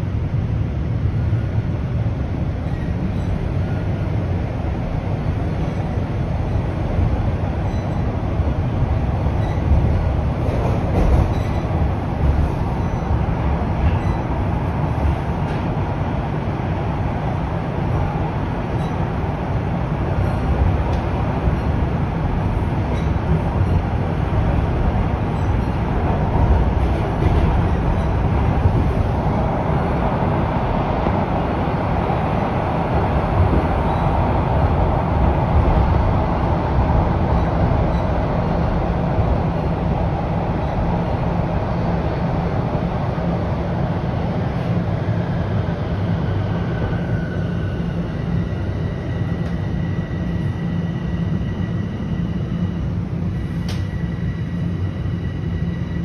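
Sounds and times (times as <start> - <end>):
subway train rumbling on rails: 0.0 - 56.0.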